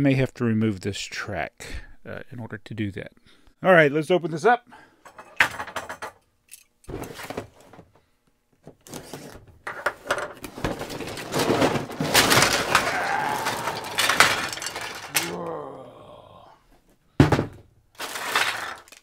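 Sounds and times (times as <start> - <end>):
plastic pieces clattering on table: 8.9 - 15.4, 18.0 - 19.0
cardboard box rustling: 10.5 - 12.8.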